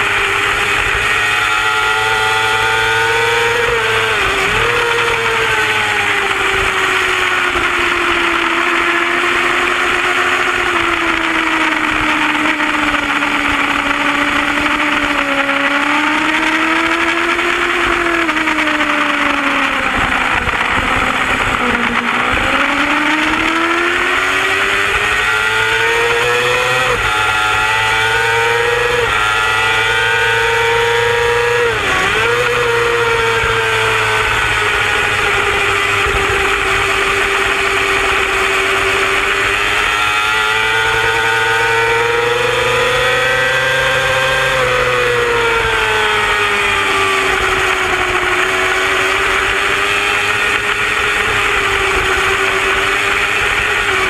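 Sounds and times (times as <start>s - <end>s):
motorcycle engine at high revs: 0.0s - 54.0s
wind rushing: 18.0s - 25.6s.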